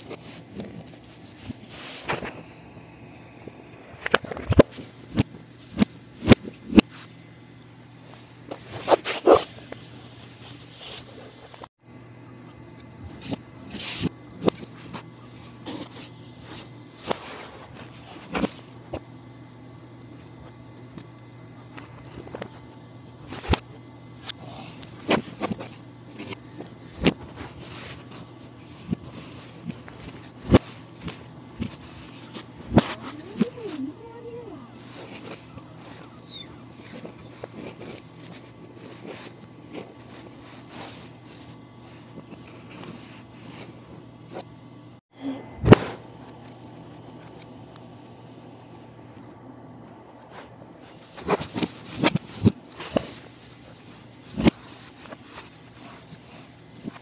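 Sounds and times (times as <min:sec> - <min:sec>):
low steady hum: 0:00.0 - 0:57.0
brushing and rubbing: 0:27.0 - 0:44.4.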